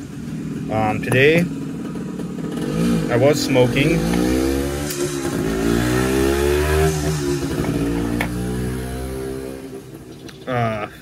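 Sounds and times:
vehicle engine passing: 0:01.8 - 0:10.1.

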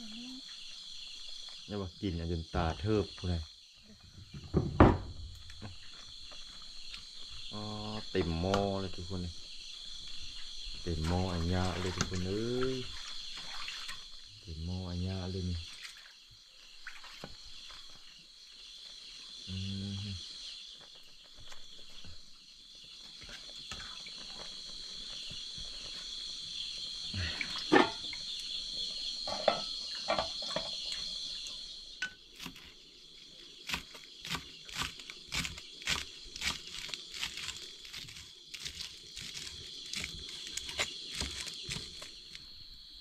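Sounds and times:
insects chirring: 0:00.0 - 0:43.0
pot lid and ladle clanking: 0:29.3 - 0:30.7.

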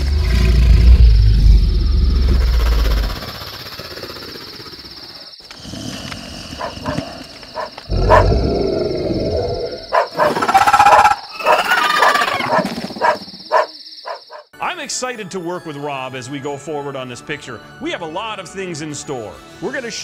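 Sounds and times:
low rumble: 0:00.0 - 0:03.2
dog barking: 0:06.6 - 0:07.0, 0:07.6 - 0:08.3, 0:09.9 - 0:14.5.

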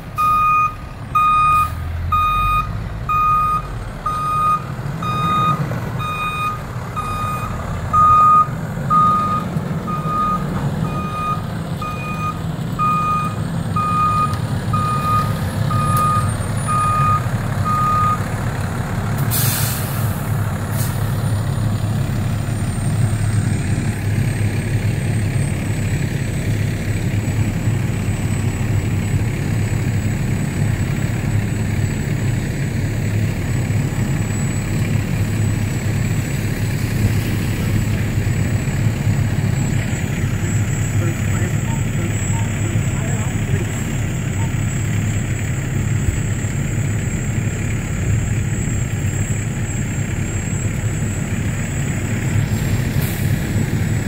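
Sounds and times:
truck backup alarm beeping: 0:00.0 - 0:36.4, 0:37.8 - 0:53.8
diesel engine idling: 0:00.0 - 0:54.0
air brake hiss: 0:19.2 - 0:21.1, 0:52.5 - 0:53.4.

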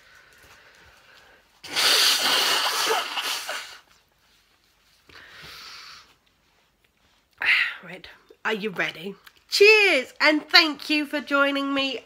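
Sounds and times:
person blowing nose: 0:01.6 - 0:04.0.

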